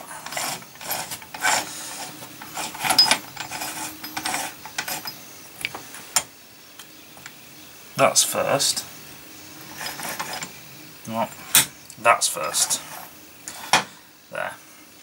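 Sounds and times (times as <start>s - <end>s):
metal gears scraping: 0.0s - 5.3s, 9.6s - 11.7s.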